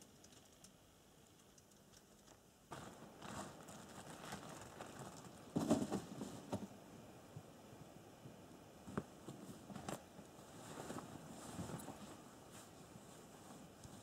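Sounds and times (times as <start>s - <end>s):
faint clicks: 0.0s - 2.4s
clothing and gear rustling: 8.9s - 14.0s.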